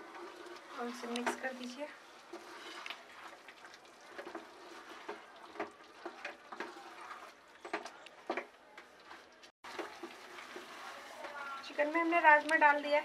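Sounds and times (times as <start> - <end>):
spatula scraping a pan: 0.0 - 7.8.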